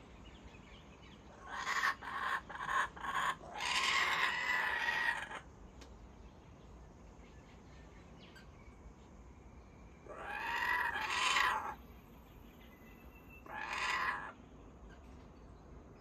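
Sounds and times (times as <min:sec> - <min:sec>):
kookaburras calling: 0:01.3 - 0:05.5, 0:10.0 - 0:11.8, 0:13.4 - 0:14.4.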